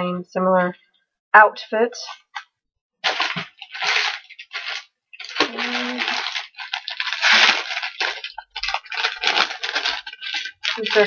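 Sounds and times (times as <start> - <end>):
plastic packaging crinkling: 3.0 - 11.0.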